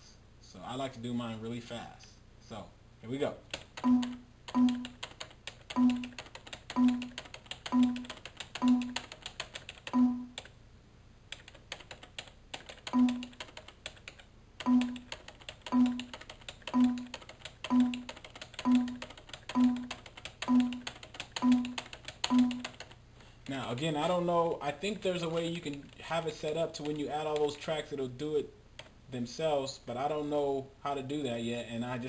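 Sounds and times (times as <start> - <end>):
keyboard keys clicking: 3.5 - 10.5, 11.3 - 23.0.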